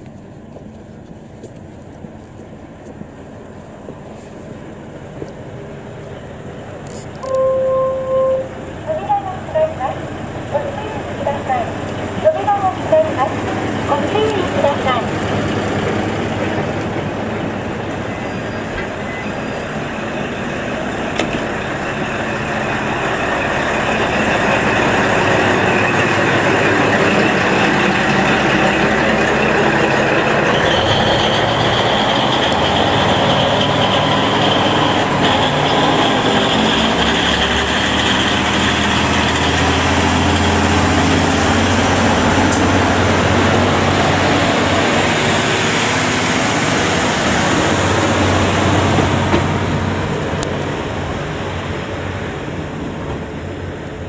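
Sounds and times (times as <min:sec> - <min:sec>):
diesel train engines running: 0:00.0 - 0:54.0.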